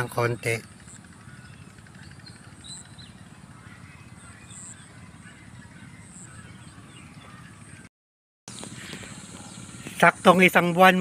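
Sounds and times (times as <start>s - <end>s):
high bird chirps: 0.6s - 7.9s.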